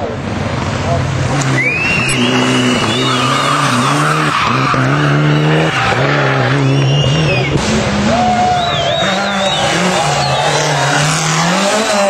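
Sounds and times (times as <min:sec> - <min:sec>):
rally car engine revving: 0:00.0 - 0:12.0
tyres squealing: 0:01.5 - 0:07.6.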